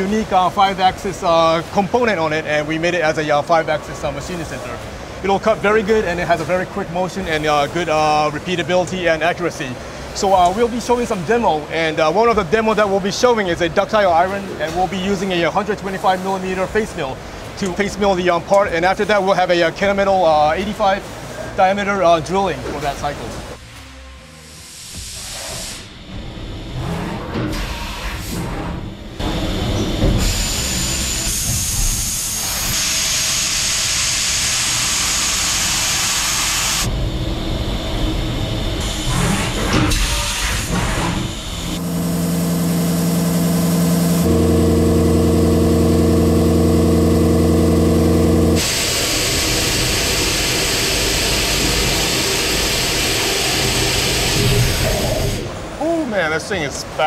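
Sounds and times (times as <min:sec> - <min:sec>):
machining noise with steady hiss: 0:00.0 - 0:57.0
steady multi-pitch humming tone: 0:41.3 - 0:52.7.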